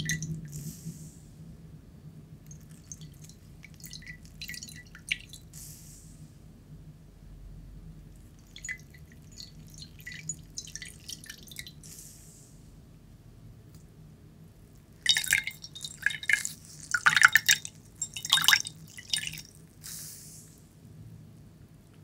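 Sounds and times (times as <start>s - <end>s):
water dripping from sponge: 2.5s - 5.5s, 8.2s - 11.8s, 15.0s - 19.6s
short hiss: 5.5s - 6.3s, 11.8s - 12.6s, 19.8s - 20.7s.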